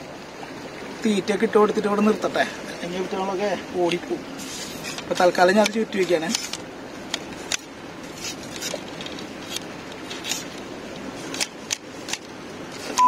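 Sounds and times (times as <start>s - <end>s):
steady background hiss: 0.0s - 13.0s
fishing rod clicks and rubbing: 4.4s - 13.0s.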